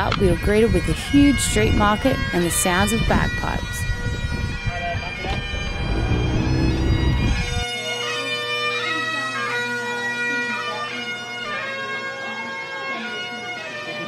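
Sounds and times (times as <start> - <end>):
bagpipes playing a tune: 0.1 - 14.0
low rumble: 4.2 - 7.7.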